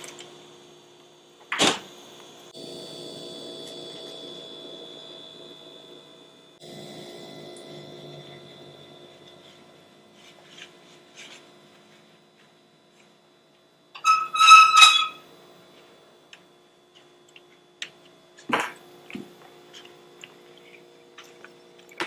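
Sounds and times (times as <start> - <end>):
faint steady hum: 0.0 - 22.0
glass pot squeaking on stove grate: 14.0 - 15.2.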